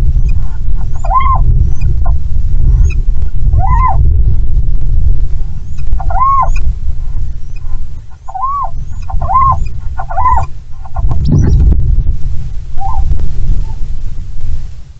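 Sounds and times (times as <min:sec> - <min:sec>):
strong wind rumble: 0:00.0 - 0:14.9
owl calling: 0:00.2 - 0:04.1, 0:05.7 - 0:11.6, 0:12.8 - 0:13.9.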